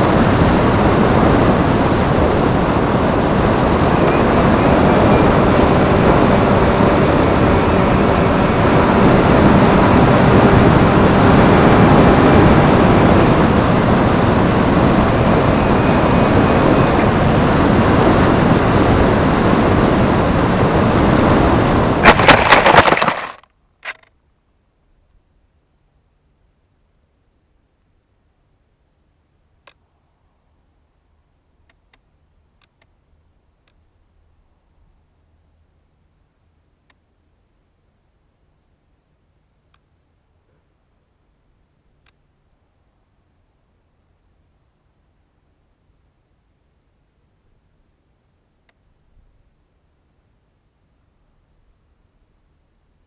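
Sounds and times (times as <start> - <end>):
wind and propeller noise: 0.0 - 24.1.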